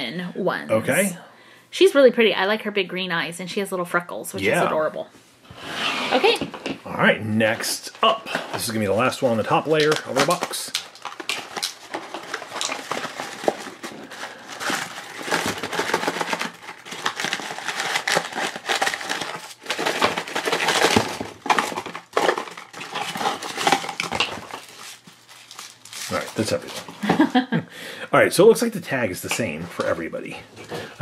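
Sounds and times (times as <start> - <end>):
paper and cardboard rustling: 7.4 - 27.4.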